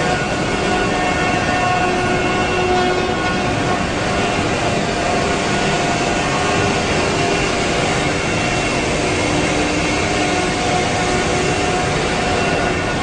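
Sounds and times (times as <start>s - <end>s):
wood router machine whir: 0.0s - 13.0s.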